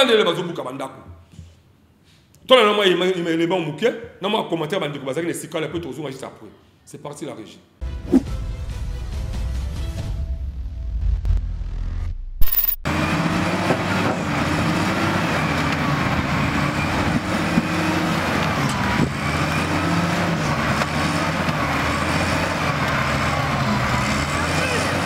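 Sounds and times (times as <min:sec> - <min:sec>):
sharp hit: 0:11.9 - 0:12.9
wheel loader diesel engine running: 0:12.9 - 0:25.0.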